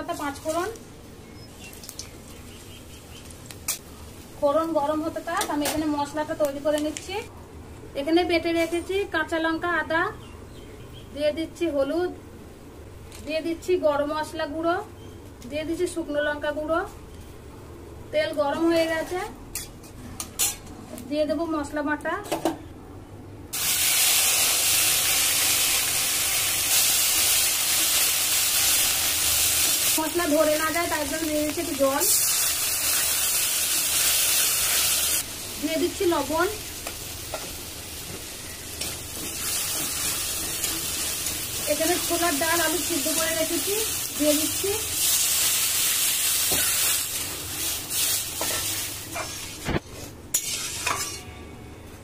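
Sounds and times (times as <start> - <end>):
spice paste sizzling in hot oil: 0.0 - 7.1, 23.6 - 50.8
metal spatula scraping a pan: 48.0 - 51.4.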